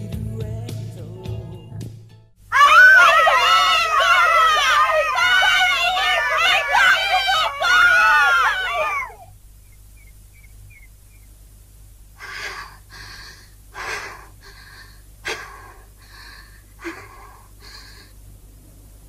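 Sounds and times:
woman panting heavily: 12.2s - 18.2s.

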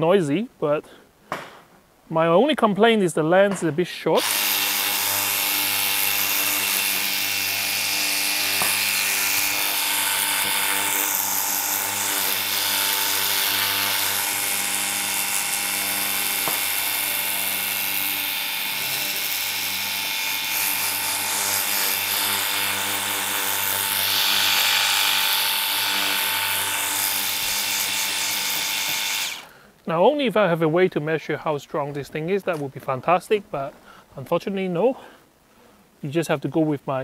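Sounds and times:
pressure washer pump hum: 4.2s - 29.5s.

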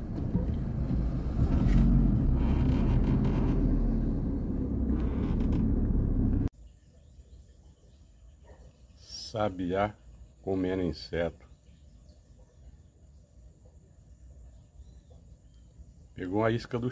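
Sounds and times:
car engine rumble from cabin: 0.0s - 6.5s
faint outdoor background: 0.0s - 16.9s.

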